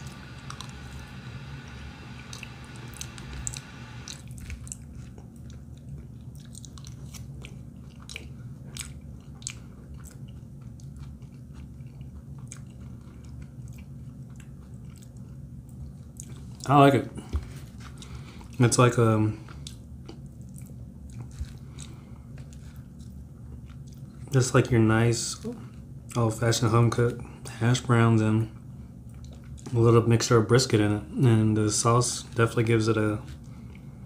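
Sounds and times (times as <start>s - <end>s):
steady low hum: 0.0s - 34.0s
person chewing: 0.2s - 16.7s, 17.8s - 18.6s, 19.4s - 24.2s.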